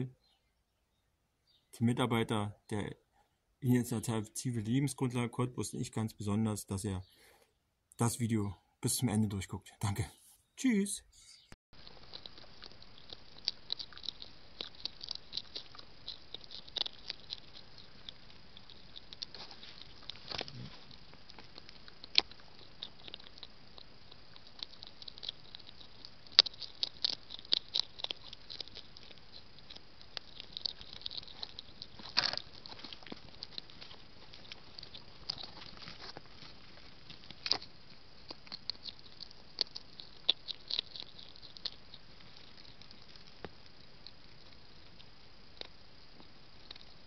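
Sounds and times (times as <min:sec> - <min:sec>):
hedgehog feeding clicks and smacks: 0:11.8 - 0:47.0.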